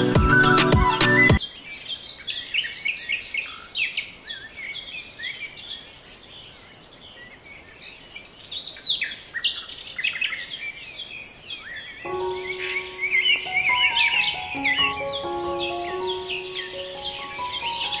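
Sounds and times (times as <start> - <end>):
small songbirds chirping: 0.0 - 18.0.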